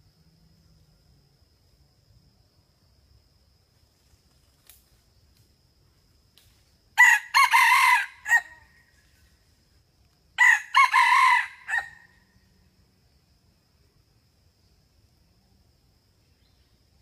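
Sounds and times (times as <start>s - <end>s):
rooster crowing: 7.0s - 8.7s, 10.4s - 12.2s.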